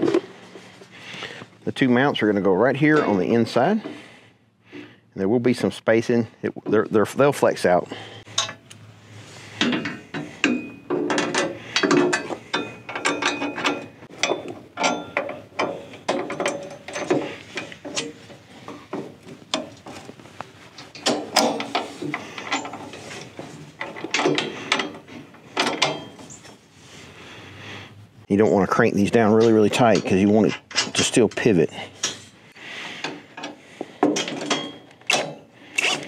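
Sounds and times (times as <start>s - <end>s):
metal clinks: 9.8s - 18.1s.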